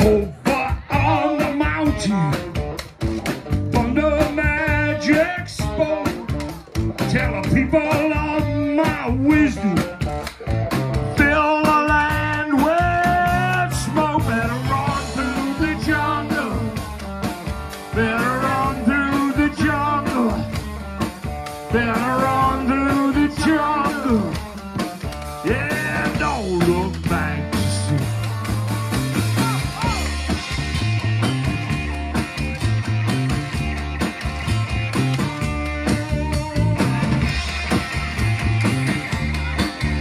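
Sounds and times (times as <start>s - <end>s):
person singing: 0.0s - 2.5s, 11.1s - 16.9s, 17.8s - 20.6s, 21.6s - 24.4s
bass guitar: 0.0s - 40.0s
drum kit: 0.0s - 40.0s
electric guitar: 0.0s - 40.0s.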